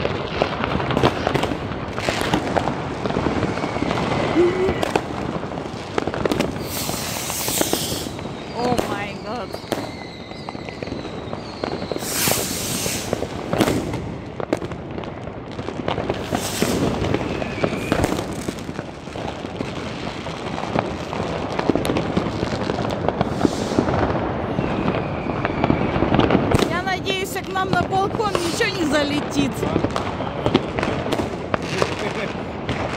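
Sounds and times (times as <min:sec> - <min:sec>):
firecrackers crackling and banging: 0:00.0 - 0:32.9
fireworks hissing bursts: 0:00.8 - 0:14.2, 0:16.0 - 0:21.0, 0:21.6 - 0:25.8, 0:26.6 - 0:29.8.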